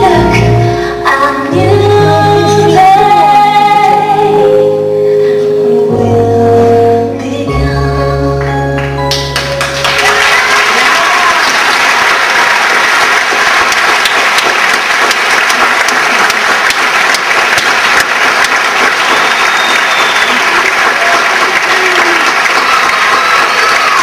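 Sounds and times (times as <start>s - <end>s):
audience applauding: 9.1s - 24.0s.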